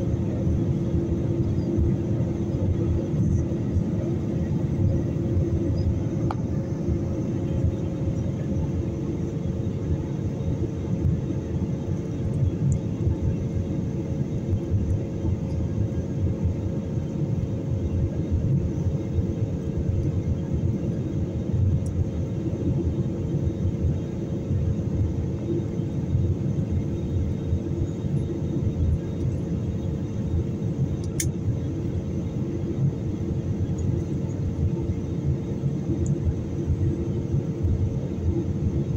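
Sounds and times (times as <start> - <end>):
airliner cabin engine roar: 0.0 - 38.9
steady hum: 0.0 - 38.9
sharp click: 31.0 - 31.4.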